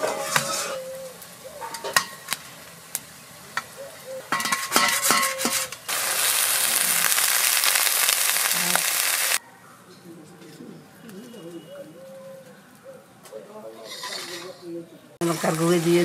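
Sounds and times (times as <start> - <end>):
knife scraping steel bowl: 0.0 - 0.9, 4.4 - 5.8, 13.8 - 14.6
onions sizzling in oil: 0.0 - 9.4, 15.2 - 16.0.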